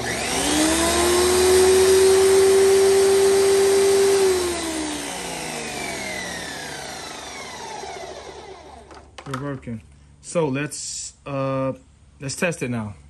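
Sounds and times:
pressure washer motor whine: 0.0s - 9.1s.

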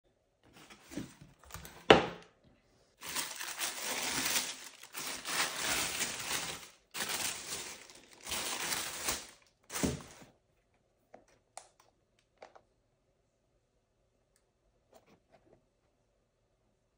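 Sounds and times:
tissue paper rustling: 3.0s - 10.3s.

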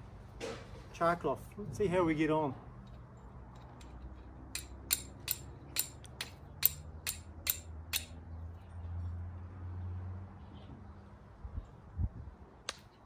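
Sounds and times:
steel striking flint clicks: 3.6s - 8.2s.

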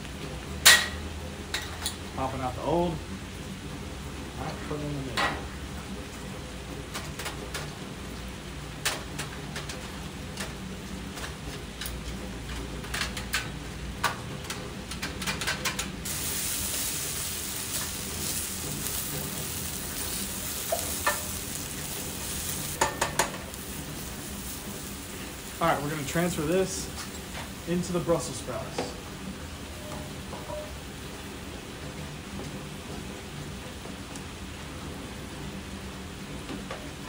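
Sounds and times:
potatoes sizzling in oil: 16.0s - 29.7s
spatula scraping and clacking on pan: 17.7s - 24.6s.

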